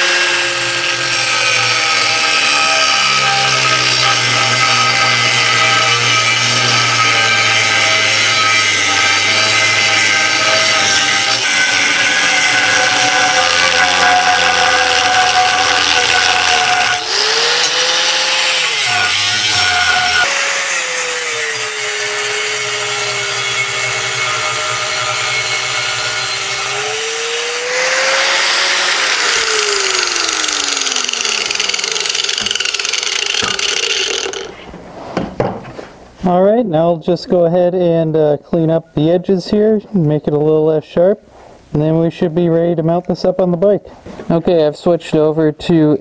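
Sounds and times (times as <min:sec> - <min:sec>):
angle grinder cutting steel: 0:00.0 - 0:34.7.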